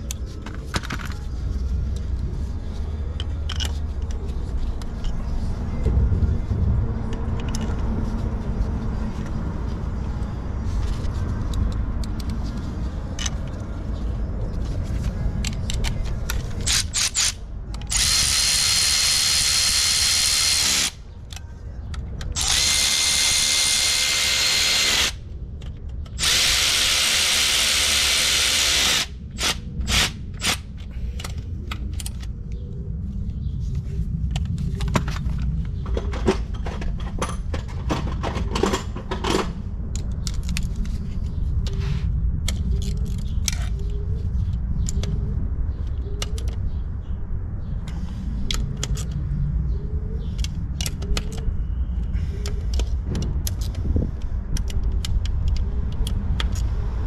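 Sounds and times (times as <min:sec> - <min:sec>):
tools clicking and knocking: 0:03.1 - 0:05.2, 0:07.1 - 0:07.9, 0:11.4 - 0:13.7, 0:14.9 - 0:23.2, 0:23.8 - 0:32.6, 0:34.3 - 0:41.8, 0:42.4 - 0:45.2, 0:45.8 - 0:46.7, 0:47.8 - 0:49.3, 0:50.2 - 0:51.6, 0:52.4 - 0:56.8
power drill motor running: 0:16.7 - 0:21.0, 0:22.4 - 0:25.2, 0:26.2 - 0:30.6.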